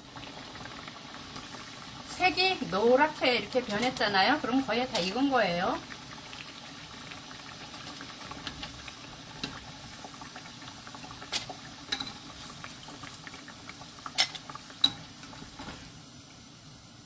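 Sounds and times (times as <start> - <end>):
oil bubbling sizzle: 0.0 - 17.0.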